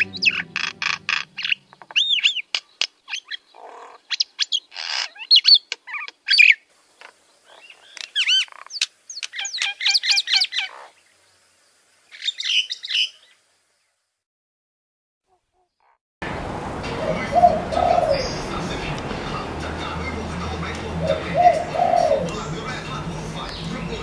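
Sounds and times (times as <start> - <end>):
myna singing: 16.8 - 24.0.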